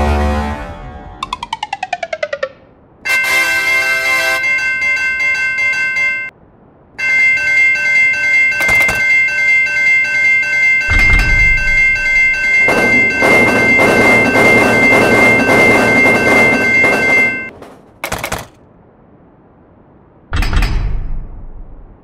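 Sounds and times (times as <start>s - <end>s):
railroad crossing bells ringing: 3.0s - 6.4s, 7.0s - 17.5s
low thump: 10.9s - 11.9s.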